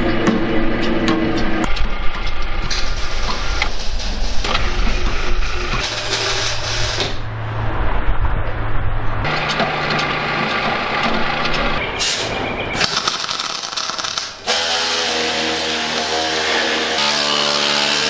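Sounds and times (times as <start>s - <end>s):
welding arc crackling: 2.2s - 7.1s, 12.8s - 18.0s.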